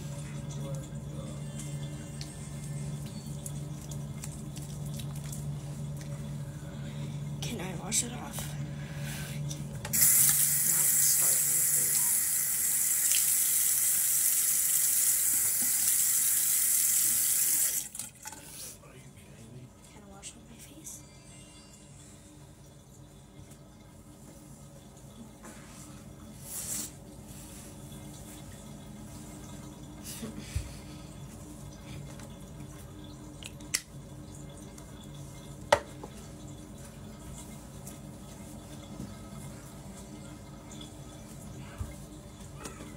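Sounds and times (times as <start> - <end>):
faint steady hum: 0.0 - 42.9
faucet running into sink: 9.9 - 18.4
face being washed: 9.9 - 18.6.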